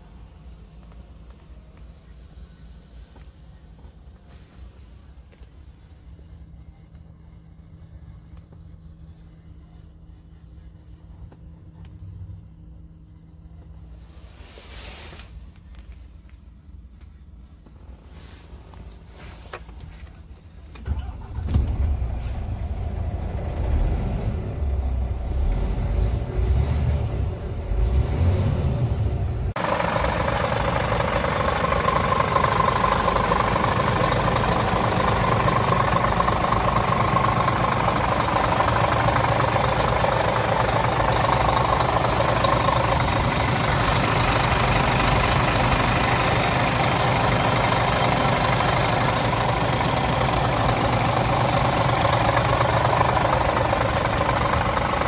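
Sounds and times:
diesel engine starting and idling: 0:20.3 - 0:55.0.

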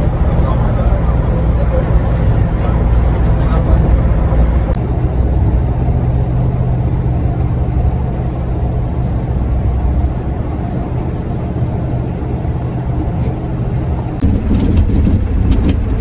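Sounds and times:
road and engine noise in car: 0:00.0 - 0:16.0.

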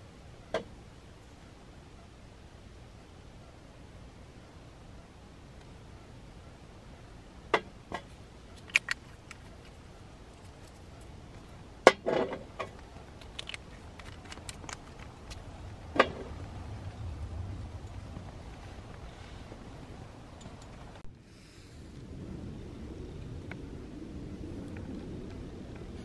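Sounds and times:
small hard objects clicking: 0:08.6 - 0:09.8, 0:12.6 - 0:15.5.

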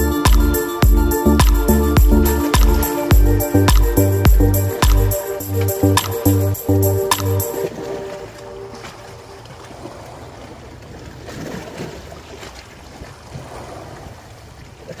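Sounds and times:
waves lapping on rocky shore: 0:07.7 - 0:15.0.

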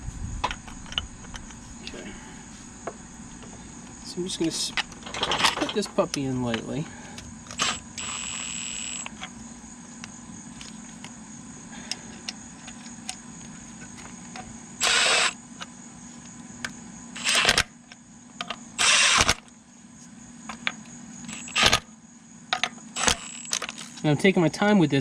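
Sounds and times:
cordless impact tool bursts: 0:07.5 - 0:09.2, 0:14.8 - 0:15.4, 0:17.2 - 0:17.7, 0:18.8 - 0:19.4, 0:21.3 - 0:21.8, 0:23.0 - 0:23.8.

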